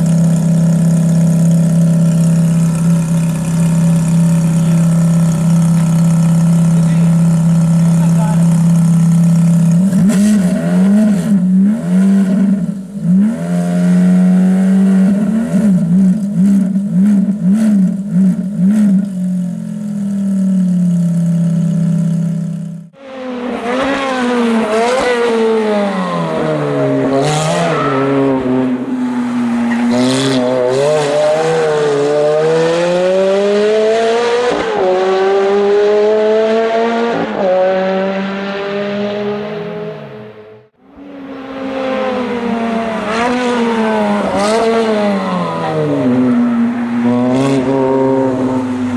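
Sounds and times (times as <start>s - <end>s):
sports car engine revving: 0.0s - 48.9s
sports car accelerating through gears: 23.0s - 48.9s.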